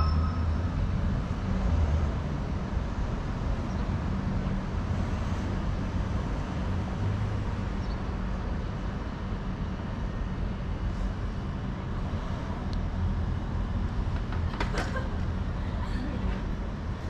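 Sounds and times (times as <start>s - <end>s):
low hum: 0.0s - 1.5s
trams and road traffic rumble: 0.0s - 17.0s.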